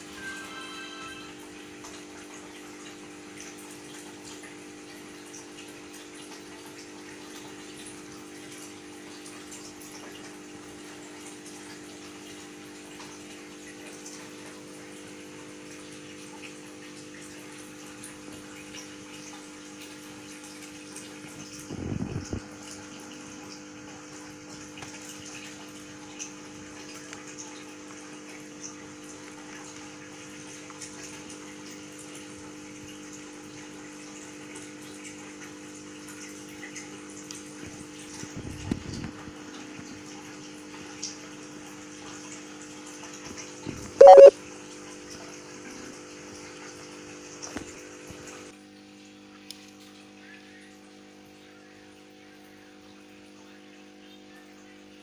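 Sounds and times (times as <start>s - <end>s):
mechanical hum: 0.0s - 42.3s.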